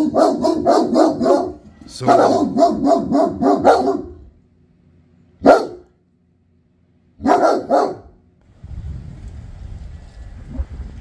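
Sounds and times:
dogs barking: 0.0s - 4.3s, 5.4s - 5.9s, 7.2s - 8.2s.

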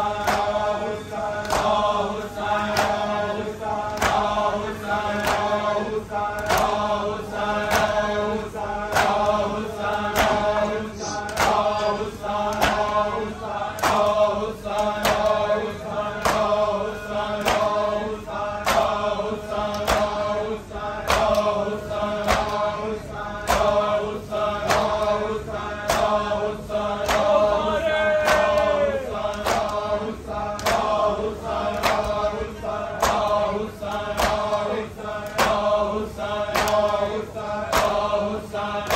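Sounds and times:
group chanting: 0.0s - 38.9s
hands slapping chests: 0.2s - 0.6s, 6.3s - 6.9s, 8.9s - 11.8s, 12.5s - 13.0s, 14.7s - 15.5s, 17.4s - 17.8s, 18.6s - 19.0s, 19.7s - 20.2s, 21.0s - 21.5s, 22.2s - 22.7s, 24.6s - 25.2s, 27.0s - 27.4s, 28.2s - 29.9s, 30.5s - 31.0s, 31.7s - 32.2s, 33.0s - 34.6s, 36.5s - 37.0s.

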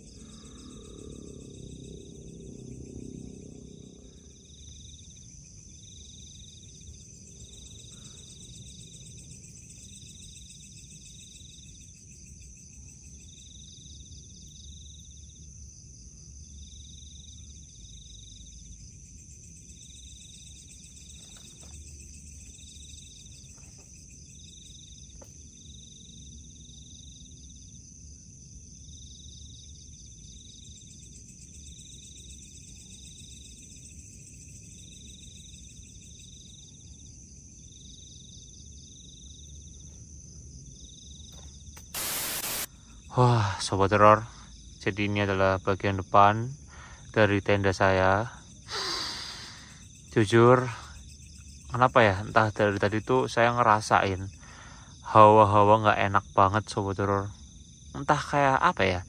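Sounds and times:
low rumble: 0.0s - 5.5s
high continuous insect trill: 0.0s - 59.0s
low pulsing insect chirp: 0.0s - 59.0s.

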